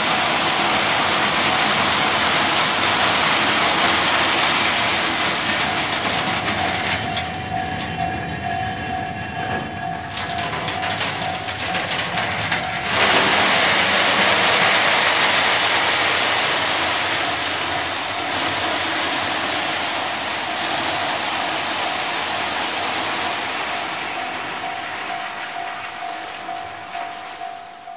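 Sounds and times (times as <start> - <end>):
train wheels clicking: 0.0 - 27.9
level-crossing bell ringing: 5.6 - 13.6, 16.7 - 27.9
ballast pouring hiss: 13.0 - 17.7.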